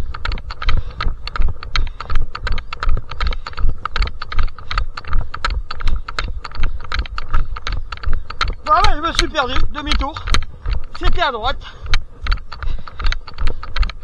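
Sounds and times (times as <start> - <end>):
running footsteps on a path: 0.0 - 14.0.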